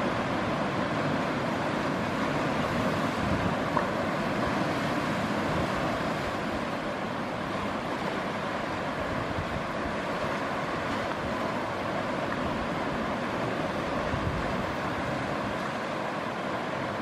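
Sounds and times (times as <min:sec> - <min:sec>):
sea surf on rocky shore: 0:00.0 - 0:17.0.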